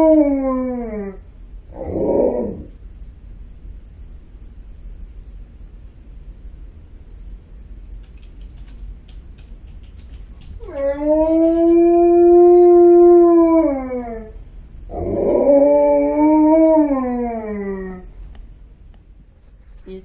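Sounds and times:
dog howling: 0.0s - 2.7s, 10.6s - 18.1s.

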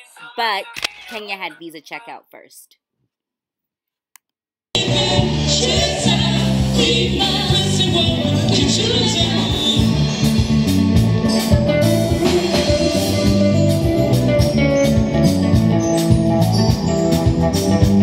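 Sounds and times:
bass guitar: 4.8s - 18.0s
drum-kit beat: 4.8s - 18.0s
electric guitar: 4.8s - 18.0s.

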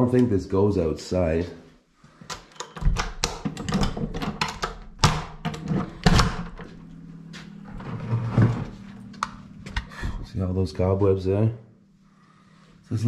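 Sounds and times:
door clunks and knocks: 2.8s - 6.6s.

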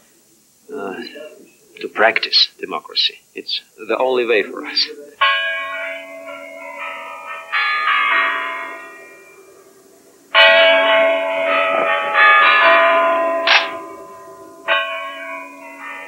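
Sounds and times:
large bells ringing: 3.9s - 16.0s.

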